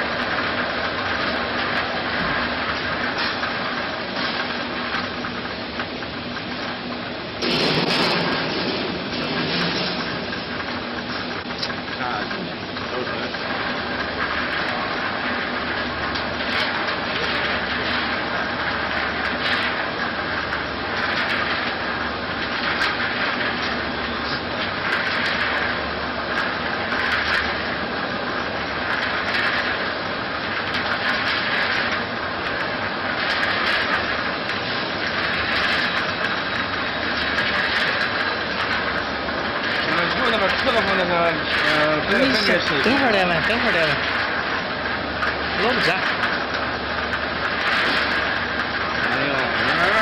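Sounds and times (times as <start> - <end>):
peanuts rattling in rotating metal pan: 12.9 - 50.0.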